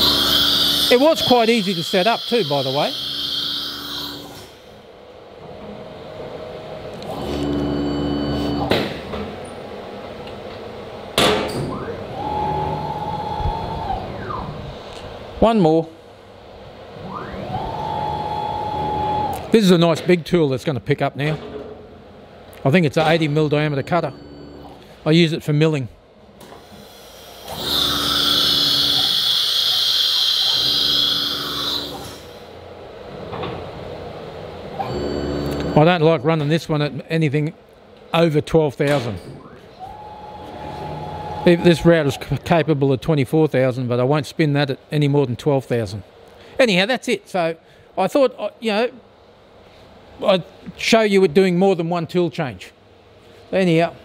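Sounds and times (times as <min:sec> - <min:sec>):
router drive motors whining: 0:00.0 - 0:04.5, 0:27.4 - 0:32.2
compressed air hissing: 0:00.0 - 0:04.8, 0:26.5 - 0:32.5
machine hum: 0:00.0 - 0:11.2, 0:27.1 - 0:35.8.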